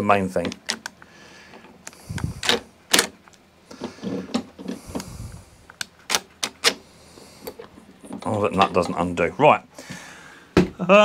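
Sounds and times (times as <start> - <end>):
clicks and knocks of handling: 0.4 - 5.1, 7.4 - 9.0.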